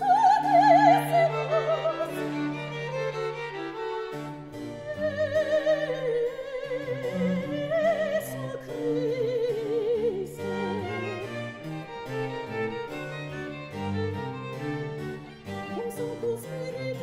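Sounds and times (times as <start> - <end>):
soprano singing with vibrato: 0.0 - 3.7, 4.8 - 11.2, 15.6 - 17.0
baroque ensemble of strings and harpsichord: 0.0 - 17.0.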